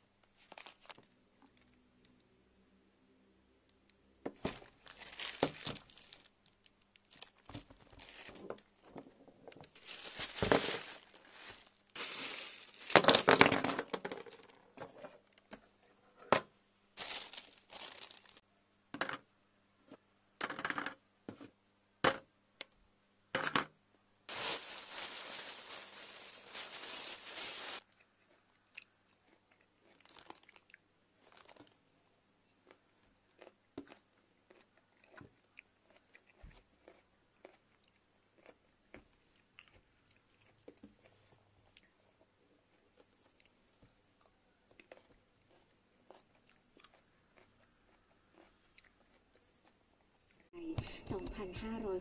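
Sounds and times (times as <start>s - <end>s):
plastic packaging crinkling: 0.4s - 1.0s, 4.4s - 8.6s, 9.5s - 14.5s, 17.0s - 18.4s, 24.3s - 27.8s, 30.0s - 30.6s.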